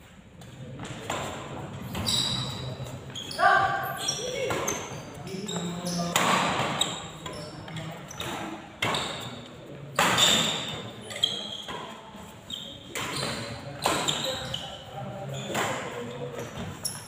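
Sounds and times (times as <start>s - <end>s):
shoes squeaking on court: 0.4s - 17.0s
rackets hitting shuttlecock: 6.0s - 10.9s, 12.9s - 14.3s.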